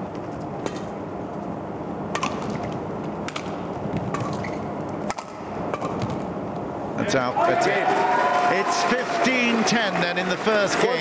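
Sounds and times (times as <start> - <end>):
rackets hitting shuttlecock: 2.1 - 6.3
arena crowd noise: 6.9 - 11.0.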